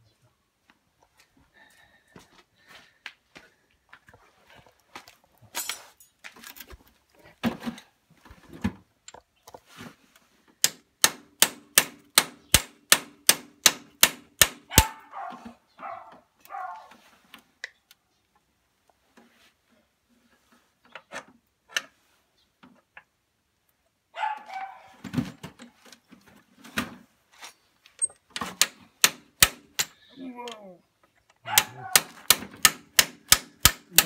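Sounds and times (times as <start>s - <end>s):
metal clinks and knocks: 5.5s - 6.6s
hammer striking steel punch: 31.6s - 34.0s.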